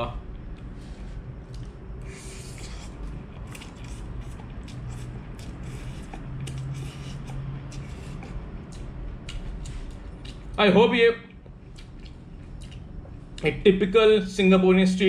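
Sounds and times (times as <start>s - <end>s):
chewing with mouth clicks: 1.4s - 10.6s, 11.3s - 13.4s
man slurping noodles: 2.0s - 8.2s.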